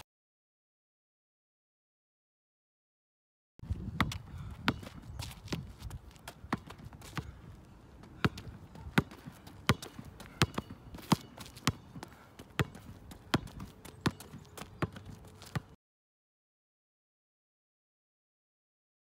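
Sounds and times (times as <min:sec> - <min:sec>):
basketball bouncing on asphalt: 0:03.6 - 0:15.8.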